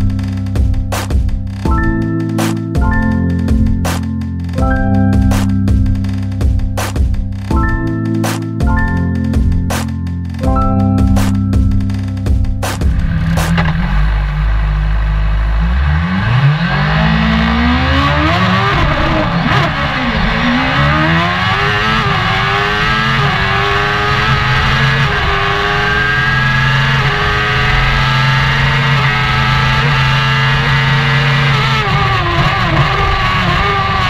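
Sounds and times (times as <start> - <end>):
racing car engine accelerating: 12.8 - 34.0.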